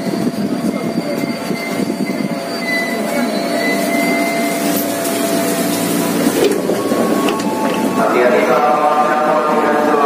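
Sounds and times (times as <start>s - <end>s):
electric train humming whine: 0.0s - 10.0s.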